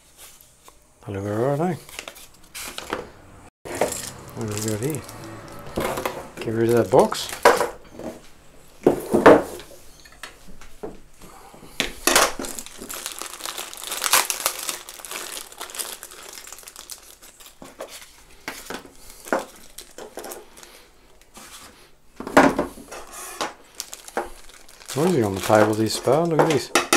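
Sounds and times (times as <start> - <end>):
plastic bag crinkling: 3.7 - 5.8, 6.4 - 7.7, 12.0 - 21.4, 23.5 - 26.8.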